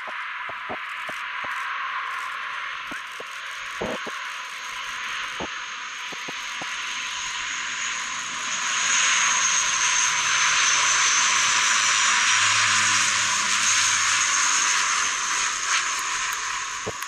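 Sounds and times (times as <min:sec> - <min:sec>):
turboprop aircraft flying past: 0:07.0 - 0:15.4.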